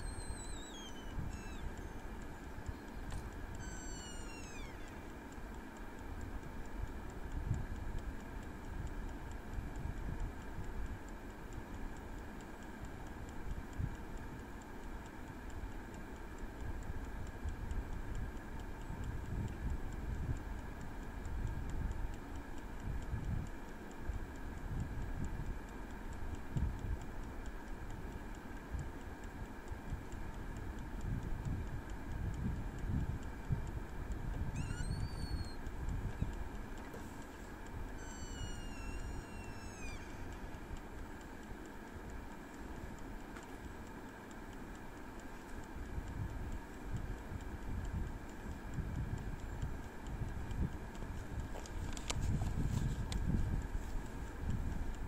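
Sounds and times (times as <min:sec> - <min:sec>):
air fryer fan humming: 0:00.0 - 0:55.0
mechanical timer ticking: 0:00.0 - 0:55.0
wind rumble on microphone: 0:26.4 - 0:27.0, 0:30.8 - 0:36.5, 0:45.8 - 0:55.0.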